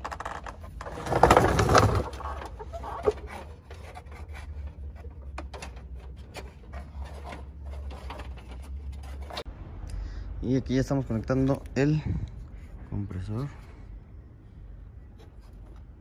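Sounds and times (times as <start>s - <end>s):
small clicks and scrapes: 0.0s - 9.5s.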